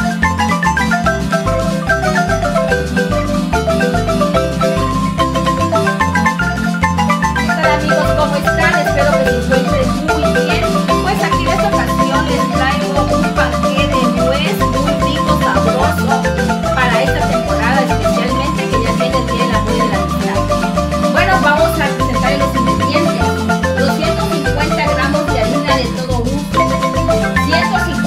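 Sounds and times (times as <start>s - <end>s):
bright melody: 0.0s - 28.0s.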